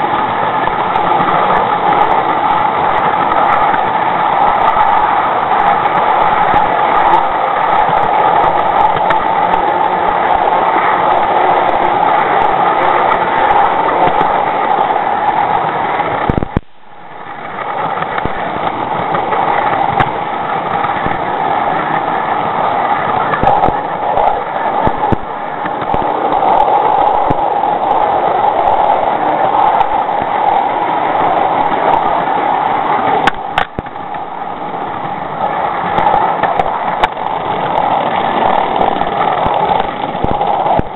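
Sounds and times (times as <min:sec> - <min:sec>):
model train wheels on rails: 0:00.0 - 0:40.9.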